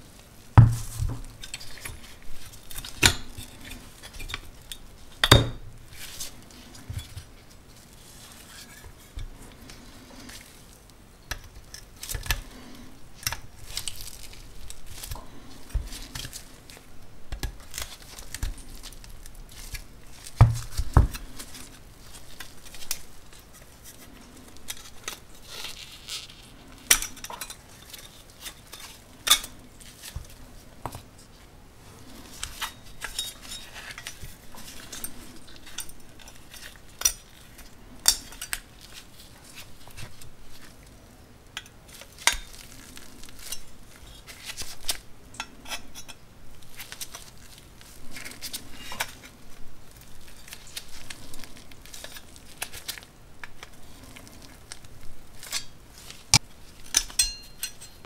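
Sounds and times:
pliers clicking and scraping metal: 55.4s - 58.0s.

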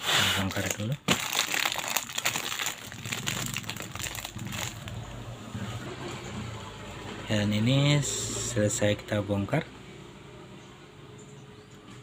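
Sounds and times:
plastic bag crinkling: 0.3s - 5.2s.

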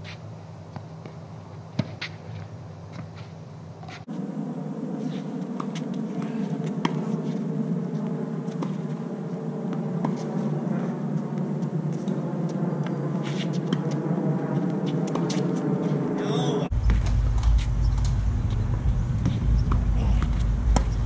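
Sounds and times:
ball bouncing on hard court: 1.8s - 2.2s, 16.7s - 21.0s
tennis racket hitting ball: 5.1s - 7.4s, 9.7s - 10.4s
low background hum: 16.3s - 21.0s.

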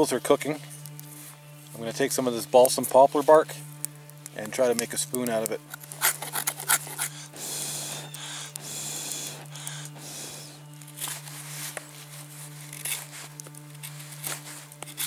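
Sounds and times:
knife scraping wood: 5.6s - 7.3s, 10.9s - 15.0s.

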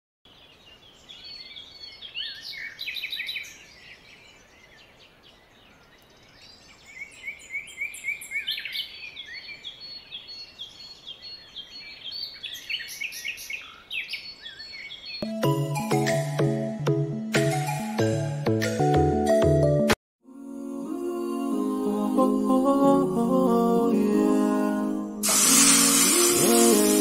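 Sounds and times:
small birds chirping: 0.3s - 15.3s.

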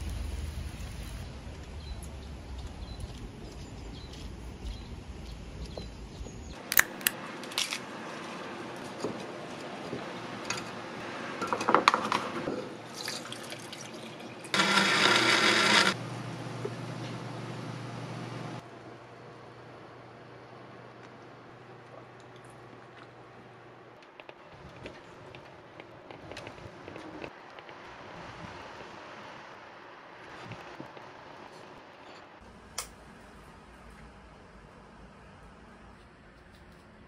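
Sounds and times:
blender running: 14.5s - 16.0s.

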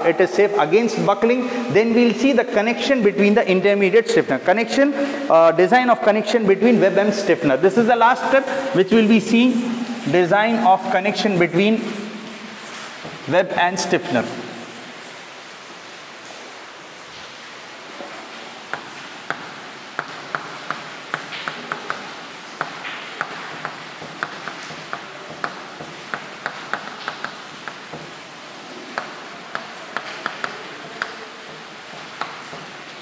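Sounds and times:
steady hiss: 0.0s - 33.0s
chalk tapping on blackboard: 8.2s - 15.3s, 18.7s - 28.2s, 29.0s - 33.0s.

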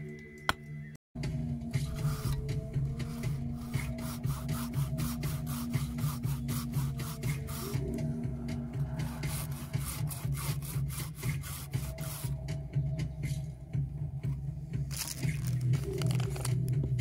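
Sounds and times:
hand saw cutting wood: 9.0s - 12.3s.

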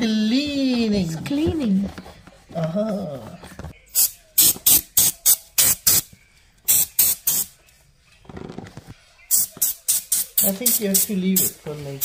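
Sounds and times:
aerosol spray can squirts: 4.0s - 6.1s.

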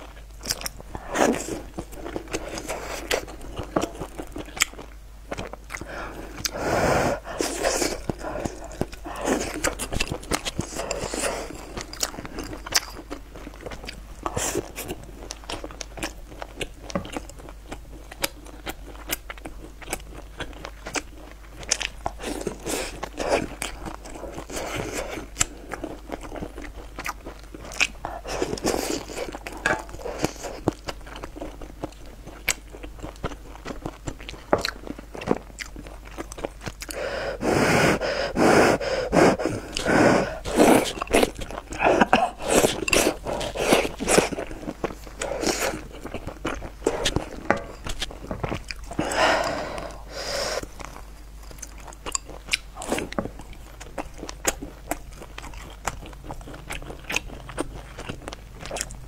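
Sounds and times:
chewing and crunching: 0.0s - 59.0s
slurping noodles: 5.9s - 9.8s, 36.9s - 46.0s.

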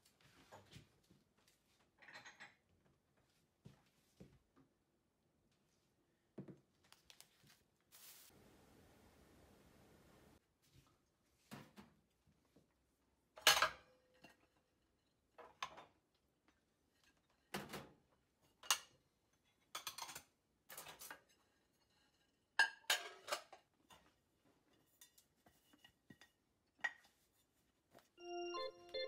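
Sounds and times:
dishes clattering in dish drainer: 22.6s - 23.5s
keyboard music: 28.2s - 29.0s.

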